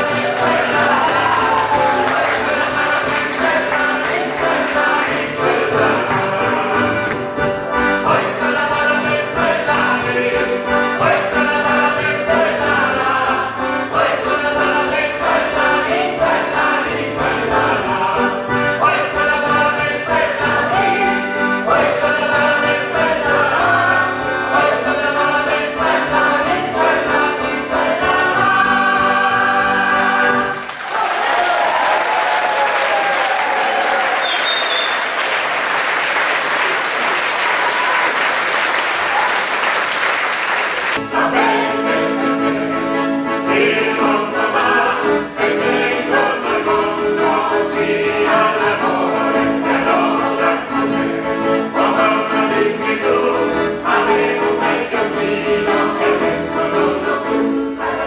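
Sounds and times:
audience applause: 0.0 - 5.3, 30.4 - 41.0
mixed choir singing: 0.0 - 7.1, 8.0 - 34.9, 41.0 - 58.0
accordion: 0.0 - 30.9, 32.6 - 58.0.

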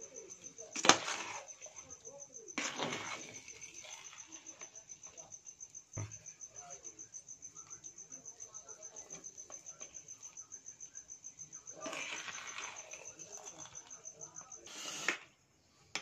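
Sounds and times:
cricket chirping: 0.0 - 16.0
ladle scraping pan: 0.7 - 1.9, 2.6 - 4.7, 11.8 - 14.0.

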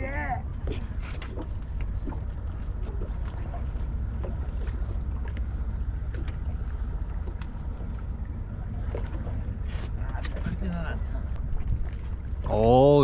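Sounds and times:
water against boat hull: 0.0 - 13.0
wind rumble on microphone: 0.0 - 13.0.

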